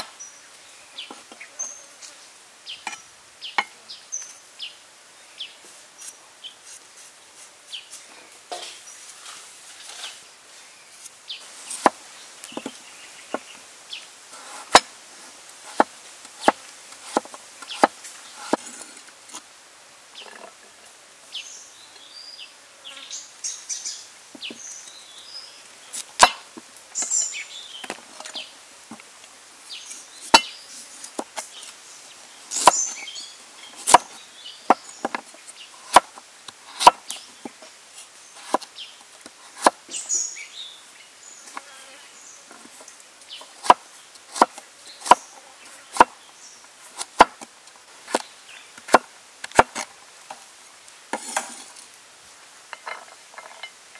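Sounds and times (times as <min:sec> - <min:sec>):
knife chopping on wooden board: 0:15.7 - 0:18.7, 0:33.8 - 0:34.1, 0:36.8 - 0:37.0.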